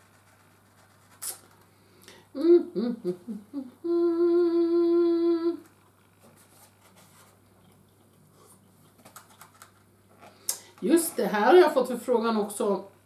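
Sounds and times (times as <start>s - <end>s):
person humming: 2.3s - 5.7s.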